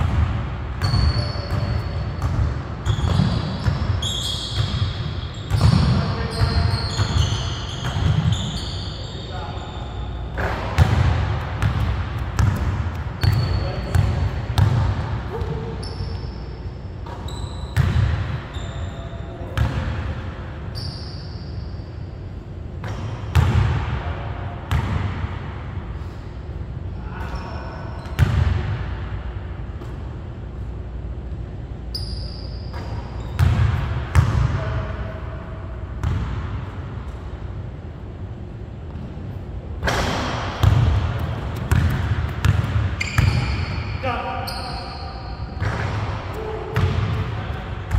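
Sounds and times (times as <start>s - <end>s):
shoe squeaks: 0.8s - 10.3s, 13.2s - 14.0s, 15.3s - 17.9s, 18.5s - 19.5s, 20.7s - 22.2s, 31.9s - 33.4s, 43.0s - 45.6s
basketball bouncing on wooden floor: 40.6s - 43.5s.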